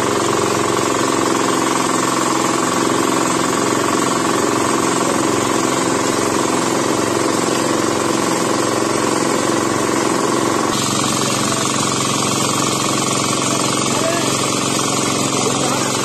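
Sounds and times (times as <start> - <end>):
engine running steadily: 0.0 - 16.0.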